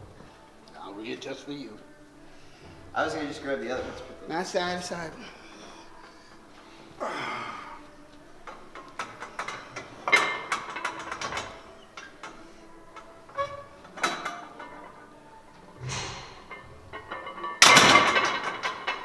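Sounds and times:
barbell plates clanking: 8.4 - 19.0.

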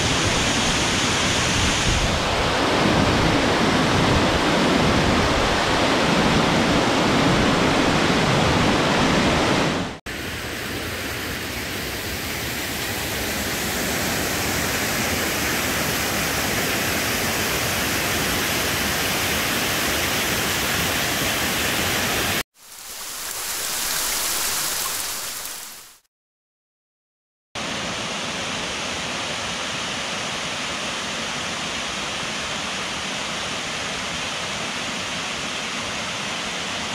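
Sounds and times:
waterfall rushing over rocks: 0.0 - 26.0.

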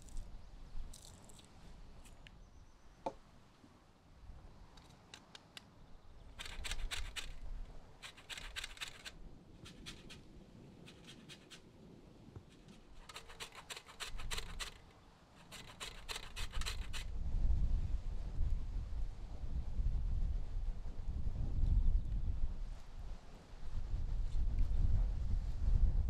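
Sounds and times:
peel rasping on metal grater: 6.4 - 7.4, 8.0 - 9.1, 10.9 - 11.6, 12.6 - 14.8, 15.4 - 17.1.

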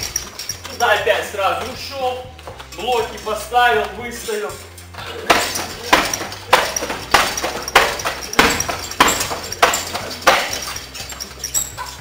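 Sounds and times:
kicks thudding into punching bag: 5.2 - 10.8.

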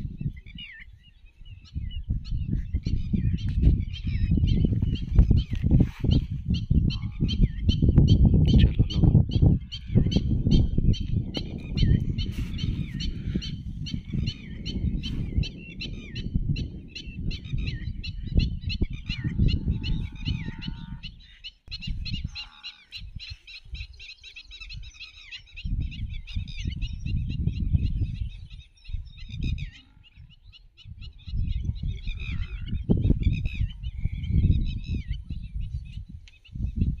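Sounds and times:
birds chirping: 0.0 - 37.0.

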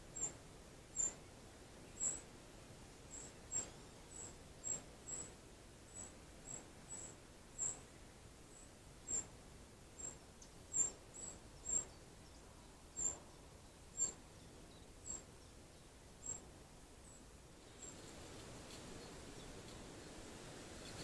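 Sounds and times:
bird peeping high and thin: 1.0 - 1.3, 13.0 - 13.4, 14.0 - 15.5.

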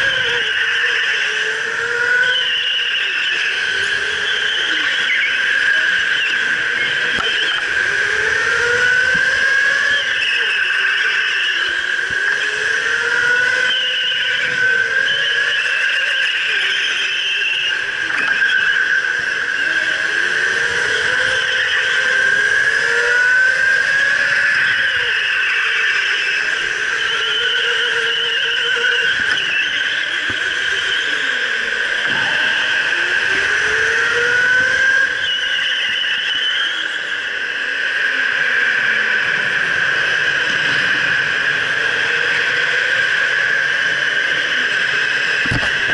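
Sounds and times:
electric go-kart motors whining: 0.0 - 45.9
steady high tone: 0.0 - 45.9.

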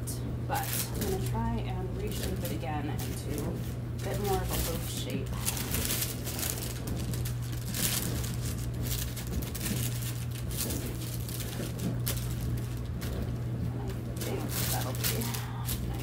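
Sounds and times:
dishwasher humming: 0.0 - 16.0
parchment paper crinkling: 0.5 - 16.0.

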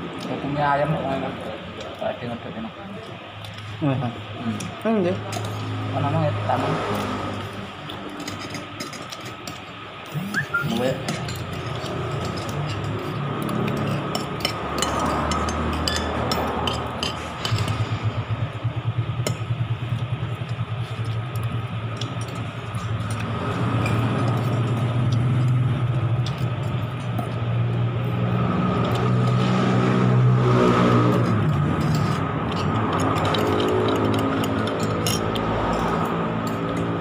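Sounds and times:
motor engine running: 10.0 - 37.0.

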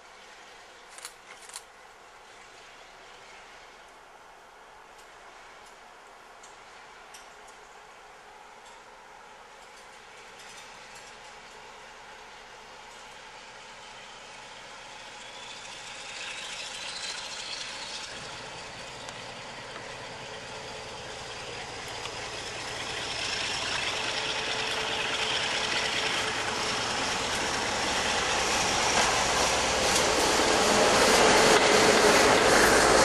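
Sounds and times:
diesel locomotive engine: 0.0 - 33.0
train wheel noise: 4.8 - 33.0.

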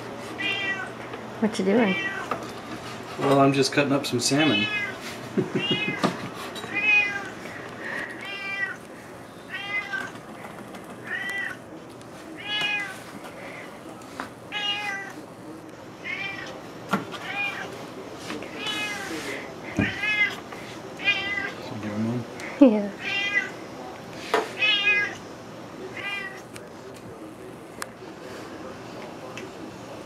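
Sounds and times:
cat meowing: 0.4 - 0.9, 1.9 - 2.3, 4.4 - 5.0, 5.6 - 6.0, 6.7 - 7.3, 8.3 - 8.8, 9.5 - 10.1, 11.0 - 11.6, 12.4 - 12.9, 14.5 - 15.1, 16.0 - 16.6, 18.5 - 19.1, 21.0 - 21.6, 23.0 - 23.6, 24.6 - 25.2, 25.9 - 26.5.

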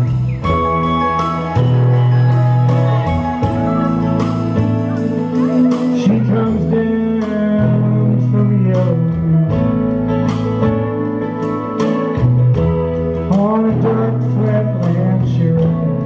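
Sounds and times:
electric guitar: 0.0 - 16.0
strummed acoustic guitar: 0.0 - 16.0
man singing: 5.2 - 10.2, 13.2 - 16.0.

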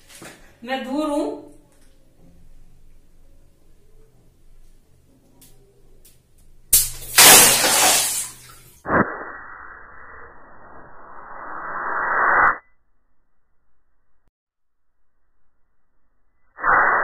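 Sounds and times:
water balloon bursting: 6.8 - 8.5
water splashing down: 6.8 - 9.0.

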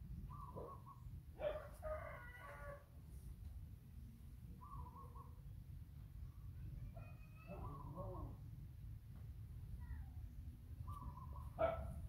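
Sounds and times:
rooster crowing: 1.5 - 2.9.

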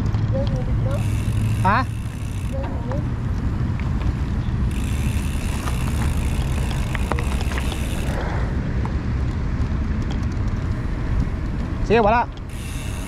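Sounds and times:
light clicks and rattles: 0.0 - 8.2
bicycle tyres on pavement: 0.0 - 13.0.

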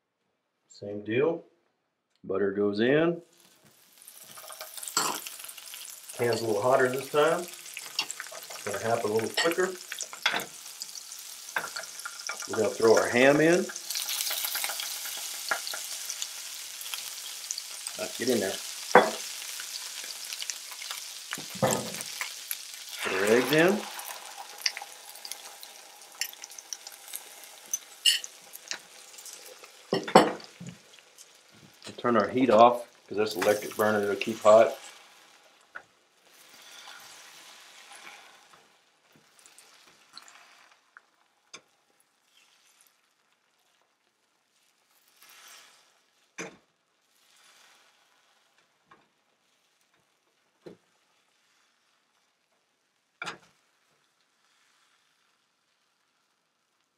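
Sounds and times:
eggs sizzling in a frying pan: 3.3 - 56.9
spatula scraping egg in skillet: 18.9 - 31.6, 36.2 - 38.6, 44.9 - 46.0
fork tapping bowl and pan: 19.0 - 19.2.

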